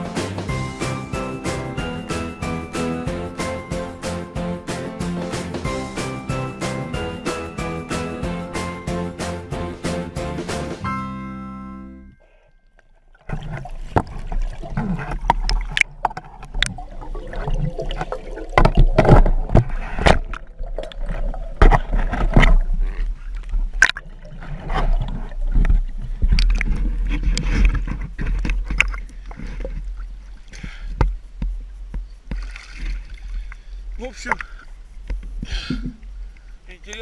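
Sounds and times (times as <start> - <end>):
water sloshing and gurgling: 12.2 - 36.7.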